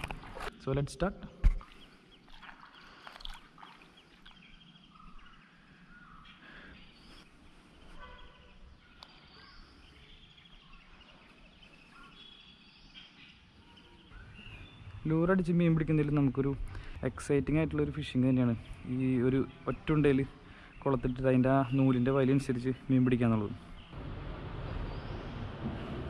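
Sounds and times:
birds chirping: 0.0 - 24.0, 24.6 - 25.8
low steady rumble: 24.0 - 26.0.

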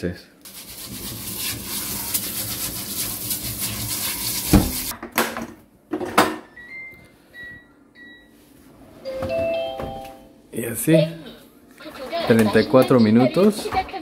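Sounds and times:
rice being washed by hand: 0.5 - 4.9
tap water running: 0.5 - 4.9.

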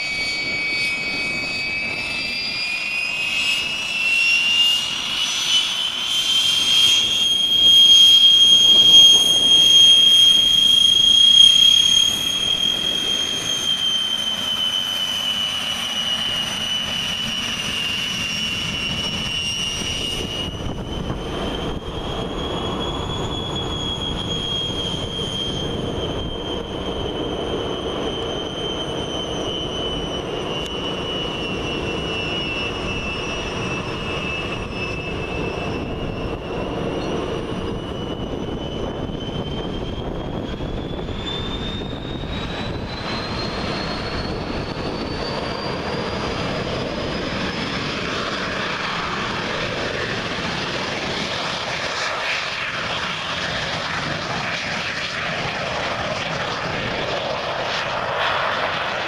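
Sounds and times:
jet engines whining: 0.0 - 59.0.

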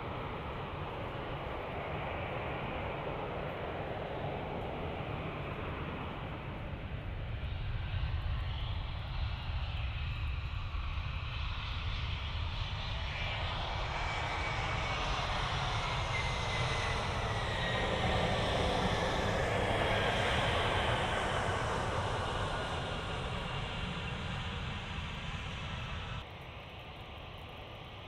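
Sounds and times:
jet engines rumbling: 0.0 - 26.3.

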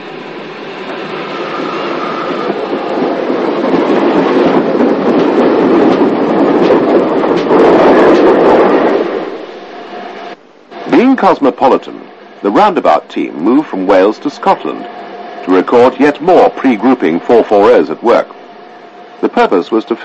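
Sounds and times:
steam locomotive wheels clattering: 0.8 - 9.3.

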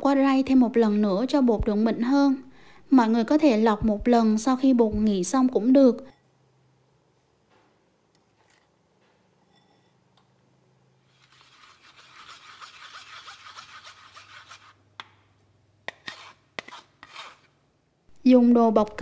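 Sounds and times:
spoon rasping batter through sieve: 11.0 - 14.8.

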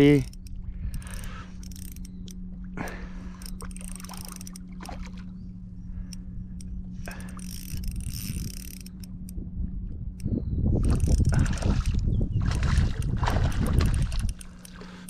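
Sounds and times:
steady low hum: 0.0 - 15.0
water lapping against kayak hull: 0.4 - 6.1, 10.8 - 15.0.

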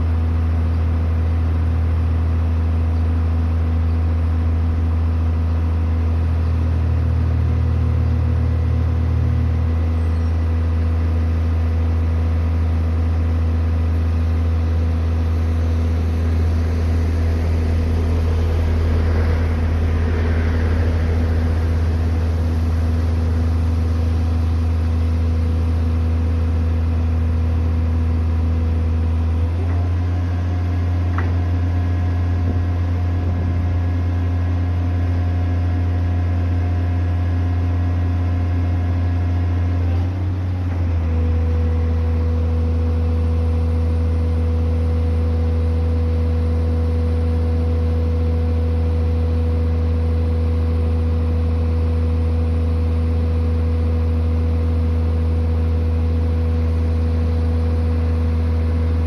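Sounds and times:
diesel engine droning: 0.0 - 59.0.

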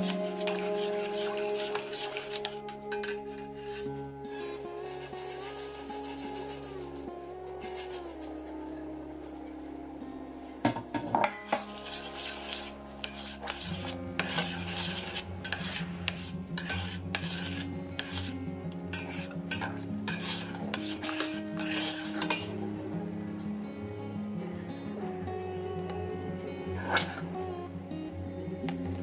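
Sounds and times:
metal spoon scraping a pot: 0.0 - 6.7, 11.2 - 22.6, 26.8 - 27.4
background music: 0.0 - 29.0.

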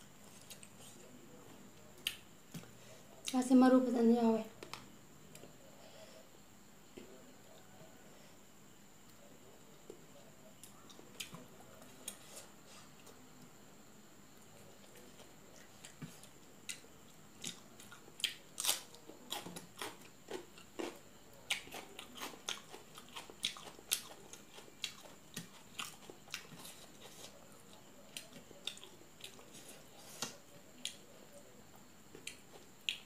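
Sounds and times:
chewing and lip smacks: 21.4 - 31.0, 32.1 - 33.0.

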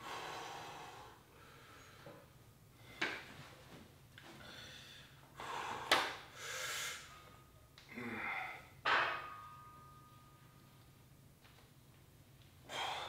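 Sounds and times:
person breathing hard: 0.0 - 2.2, 4.4 - 7.3, 12.7 - 13.0.

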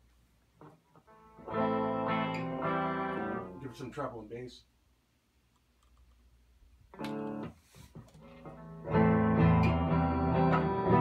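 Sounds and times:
electric guitar strummed chords: 0.6 - 3.6, 7.0 - 7.5, 8.4 - 11.0.

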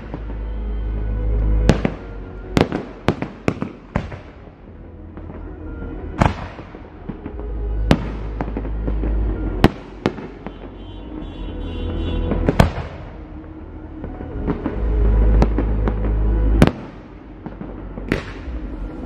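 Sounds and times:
fireworks bursting: 0.0 - 19.0
low rumble: 12.2 - 19.0.

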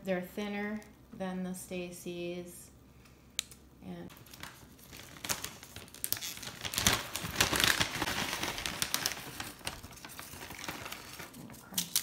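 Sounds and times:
plastic snack bag crinkling: 4.1 - 12.0.

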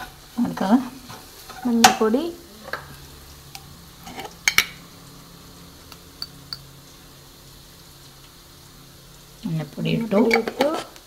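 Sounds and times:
faint steady hum: 0.0 - 11.0
kitchenware clinking: 4.0 - 4.8.

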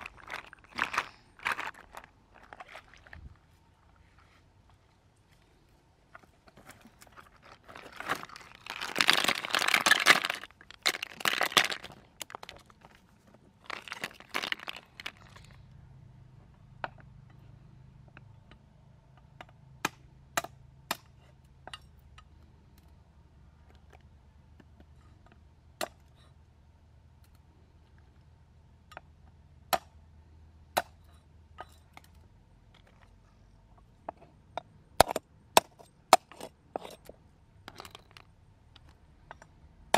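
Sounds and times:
snail shells knocking stones: 0.0 - 2.6, 7.5 - 13.0, 13.6 - 15.6
crunching on dry leaves and stones: 0.0 - 4.4, 5.4 - 15.7.

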